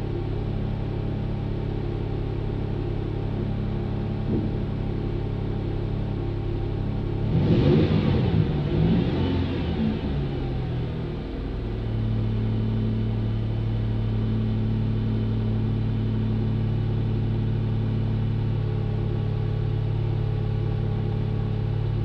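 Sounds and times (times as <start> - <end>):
engine idling low drone: 0.0 - 22.0.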